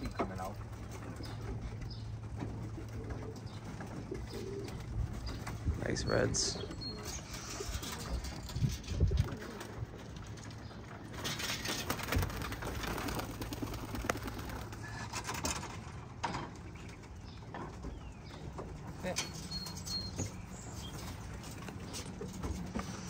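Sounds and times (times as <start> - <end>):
pigeons cooing: 0.0 - 15.9.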